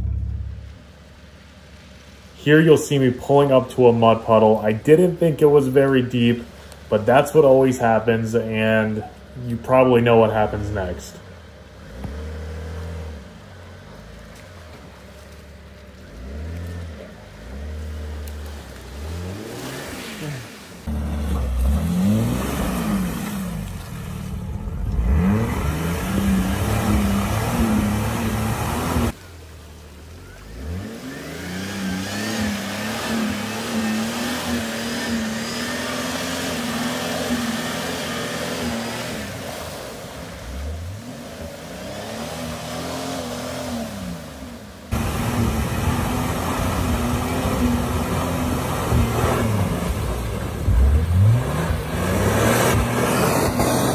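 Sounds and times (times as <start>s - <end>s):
car engine revving: 0.0s - 53.9s.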